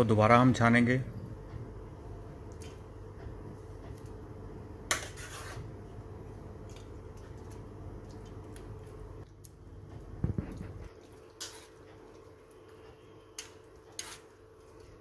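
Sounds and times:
spoon working fruit pulp in sieve: 0:10.3 - 0:15.0.

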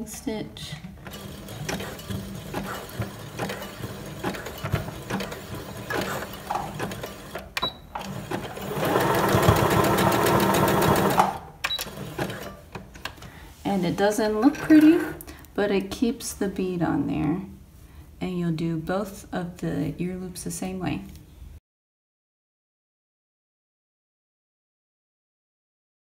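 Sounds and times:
sewing machine stitching: 0:00.8 - 0:12.8.

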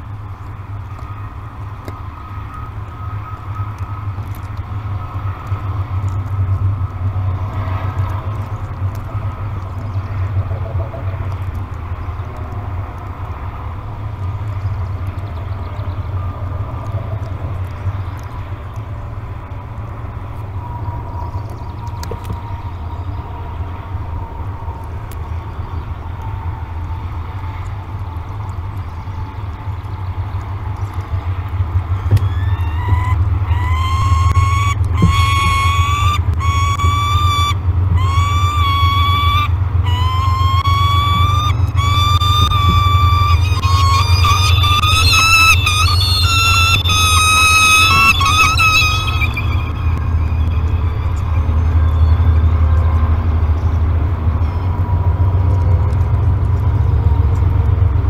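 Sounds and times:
low outdoor rumble: 0:00.0 - 0:58.0
steady low hum: 0:00.0 - 0:58.0
falcon wailing begging calls: 0:32.0 - 0:52.7
faint thin high tone: 0:42.0 - 0:52.5.

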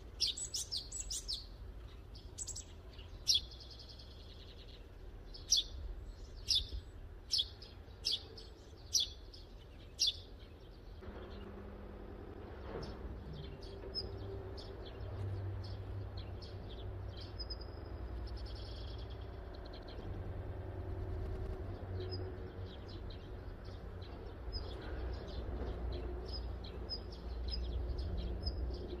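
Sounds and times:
small birds chirping: 0:00.0 - 0:11.6, 0:12.3 - 0:29.0
low steady rumble: 0:17.6 - 0:24.6.

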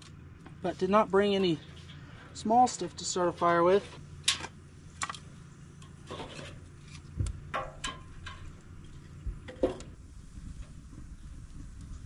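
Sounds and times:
firewood knocking and scraping: 0:03.8 - 0:11.0.

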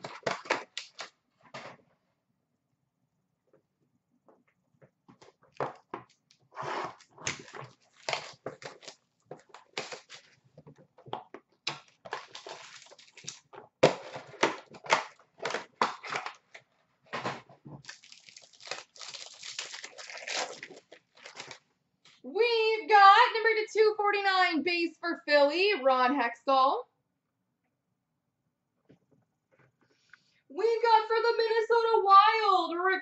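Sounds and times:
cardboard and plastic crinkling: 0:05.1 - 0:21.7.

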